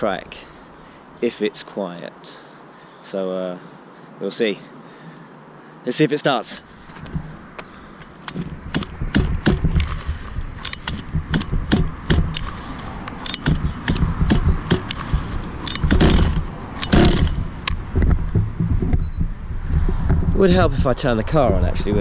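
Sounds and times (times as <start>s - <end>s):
pull-starter rattling and clicking: 8.0s - 17.8s.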